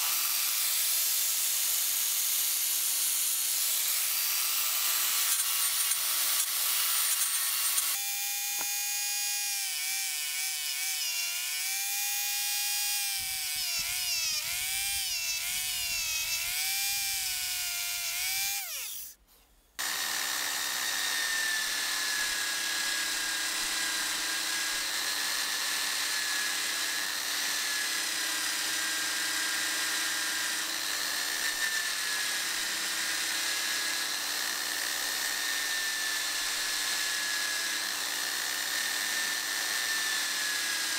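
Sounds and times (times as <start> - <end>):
angle grinder sanding metal: 0.0 - 19.2
drill press abrasive wheel whirring: 0.0 - 19.2, 19.8 - 40.9.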